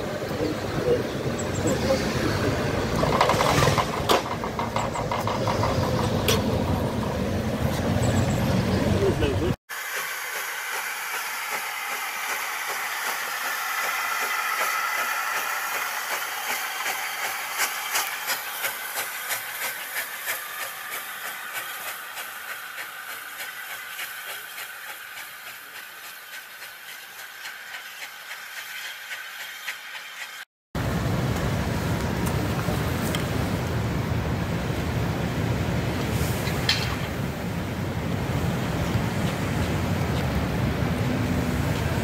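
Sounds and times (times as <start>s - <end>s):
steam locomotive chuffing beats: 9.0s - 30.4s
steam hissing: 9.7s - 30.5s.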